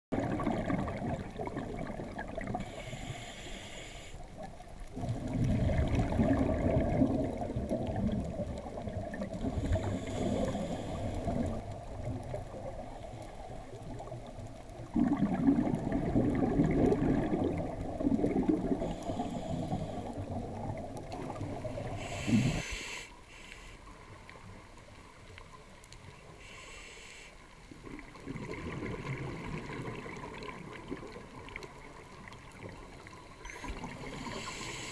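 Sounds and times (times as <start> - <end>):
gurgling exhaled bubbles: 0.1 - 2.8, 4.9 - 22.7, 27.8 - 32.7
regulator breathing hiss: 2.6 - 4.3, 9.6 - 11.3, 18.8 - 20.2, 21.8 - 23.9, 26.4 - 27.5, 34.1 - 34.9.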